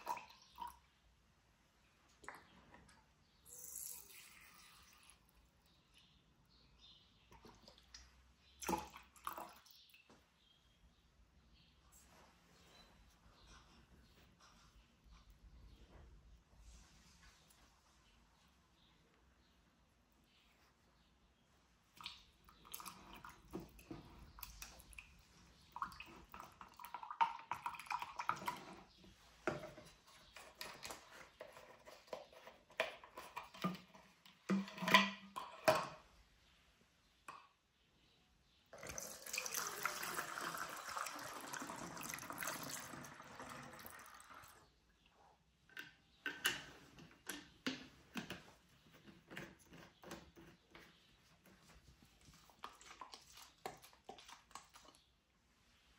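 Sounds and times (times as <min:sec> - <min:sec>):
liquid pouring into plastic bottle: 0:22.0 - 0:29.6, 0:38.7 - 0:44.6
stick stirring liquid in jug: 0:22.0 - 0:36.0, 0:45.8 - 0:55.1.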